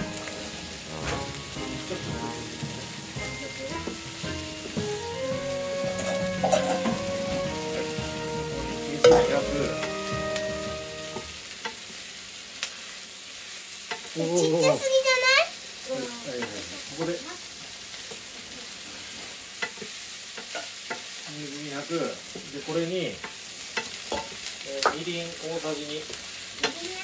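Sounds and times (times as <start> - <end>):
tune of held notes: 0.0 - 11.4
food sizzling in a frying pan: 0.0 - 27.0
utensil knocking against pan: 5.8 - 8.1, 9.0 - 9.9.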